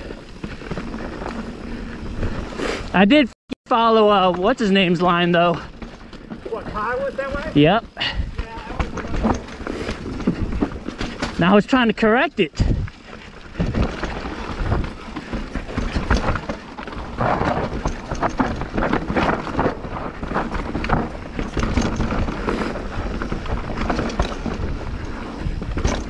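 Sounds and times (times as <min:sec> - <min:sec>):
bike clattering knocks and rattles: 0:04.1 - 0:26.0
tyre and wind rush: 0:12.4 - 0:26.0.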